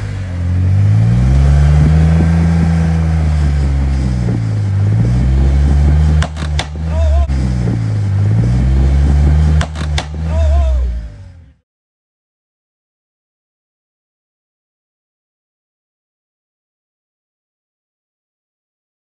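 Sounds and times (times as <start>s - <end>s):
engine revving: 0.0s - 11.6s
sharp knocks: 5.8s - 6.9s, 9.4s - 10.3s.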